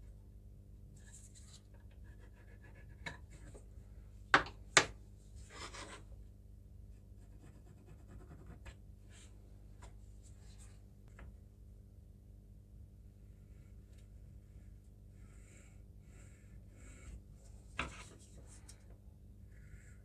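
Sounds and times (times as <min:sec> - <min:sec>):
tools scratching on wood: 0:05.5 - 0:06.0.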